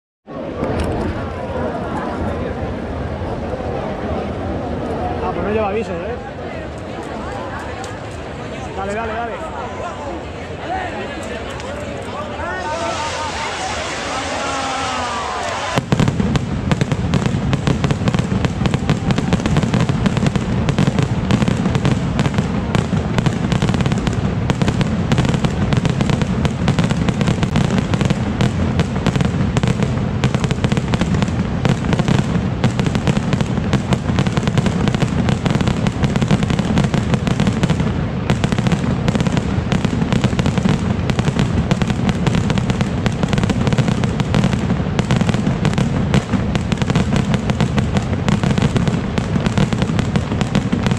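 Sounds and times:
skyrockets exploding: 12.4 - 50.9.

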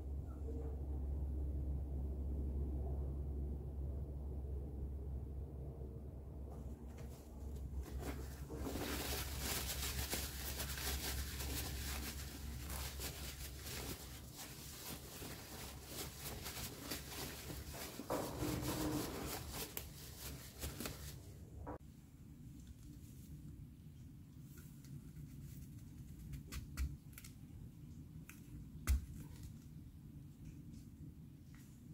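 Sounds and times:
paper towel rubbing apple: 7.8 - 21.2.

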